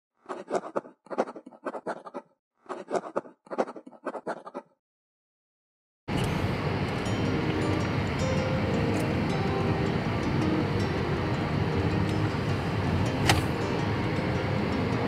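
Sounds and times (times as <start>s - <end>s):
pen scratching on paper: 0.3s - 4.7s.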